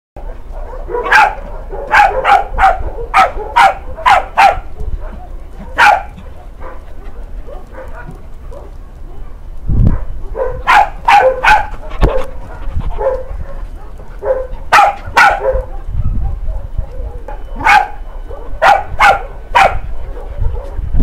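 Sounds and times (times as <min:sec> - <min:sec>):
dog barking: 0:00.2 - 0:20.9.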